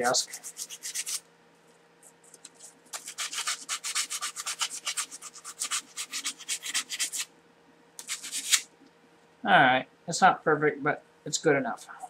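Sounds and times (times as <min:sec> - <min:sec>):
knife rubbing on sandpaper: 0:00.0 - 0:01.2, 0:02.3 - 0:07.3, 0:08.0 - 0:08.7.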